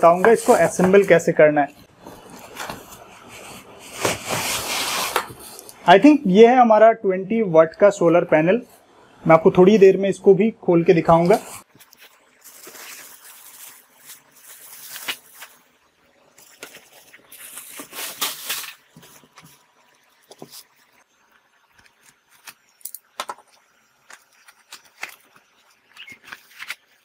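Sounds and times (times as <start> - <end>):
plastic wrapping rustling: 0.0 - 5.7, 11.1 - 21.0, 21.8 - 27.0
cardboard packaging handled: 2.0 - 5.6, 11.8 - 15.6, 16.4 - 19.6, 24.1 - 27.0.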